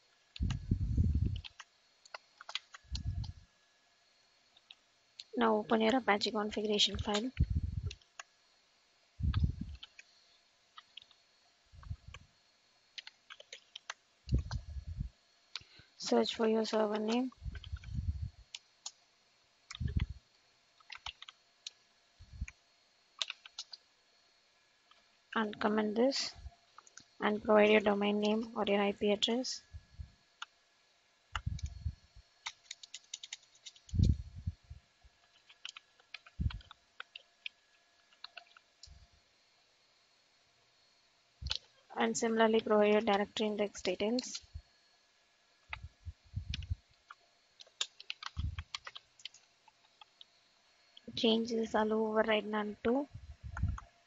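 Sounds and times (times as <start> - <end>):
dull low thumps: 0.4 - 1.5, 7.4 - 8.0, 9.2 - 9.8, 17.4 - 18.4
keyboard keys clicking: 1.3 - 3.3, 6.9 - 8.3, 13.0 - 14.6, 16.6 - 19.0, 20.8 - 21.8, 23.2 - 23.8, 32.4 - 34.2, 35.3 - 39.0, 47.6 - 50.2.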